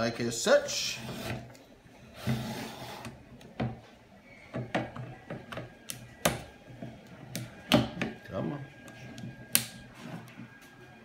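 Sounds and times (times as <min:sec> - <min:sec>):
motor scraping into metal tube: 0:00.7 - 0:01.5, 0:02.1 - 0:03.2.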